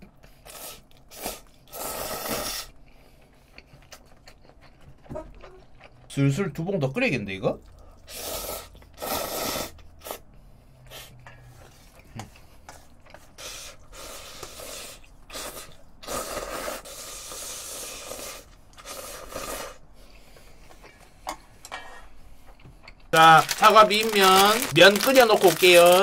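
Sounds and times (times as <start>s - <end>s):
man slurping noodles: 0.4s - 2.7s, 8.1s - 10.2s, 13.4s - 19.8s.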